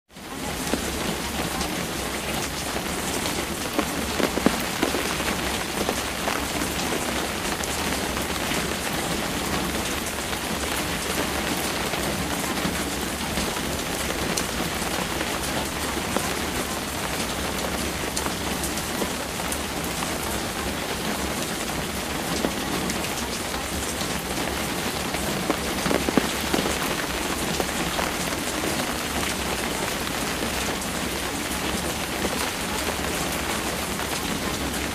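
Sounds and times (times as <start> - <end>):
steady rain falling: 0.1 - 34.9.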